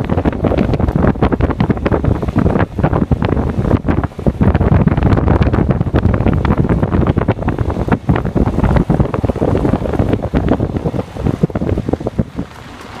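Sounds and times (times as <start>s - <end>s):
car rumbling on gravel road: 0.0s - 13.0s
wind buffeting microphone: 0.0s - 13.0s.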